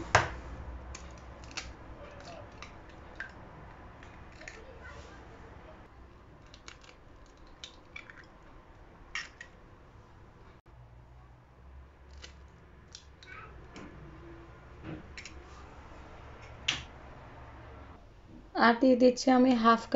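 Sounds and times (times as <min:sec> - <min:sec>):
eggs cracking against glass bowl: 0:00.9 - 0:03.4, 0:06.4 - 0:08.4, 0:09.1 - 0:09.6.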